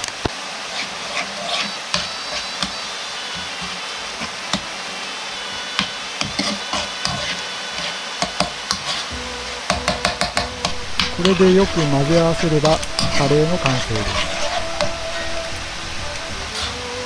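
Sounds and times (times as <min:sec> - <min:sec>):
rushing background noise: 0:00.0 - 0:17.0
metal spoon stirring in a pan: 0:00.7 - 0:02.8, 0:05.7 - 0:09.1, 0:09.7 - 0:15.4.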